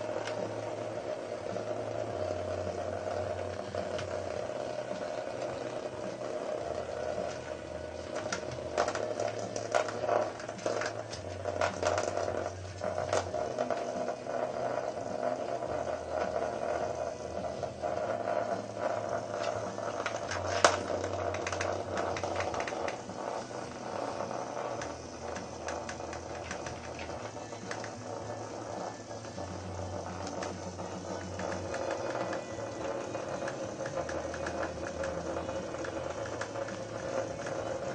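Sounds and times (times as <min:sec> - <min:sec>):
toy motor buzz: 0:00.0 - 0:37.9
toy legs pattering on plastic: 0:18.2 - 0:28.1.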